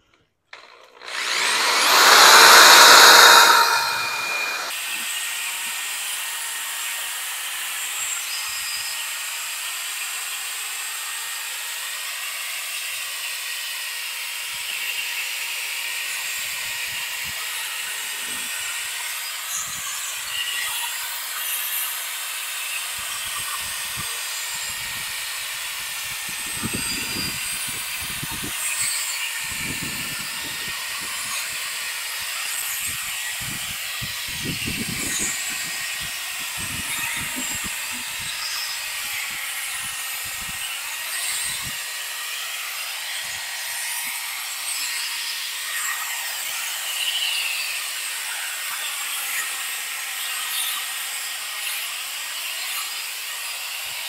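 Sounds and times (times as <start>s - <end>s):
cordless drill whining: 0.5s - 5.4s, 17.1s - 44.7s.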